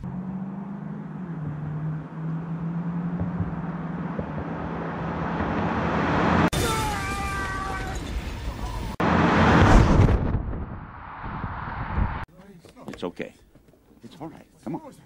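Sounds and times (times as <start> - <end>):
car engine drone and tyre noise: 0.0 - 6.5, 7.9 - 12.2.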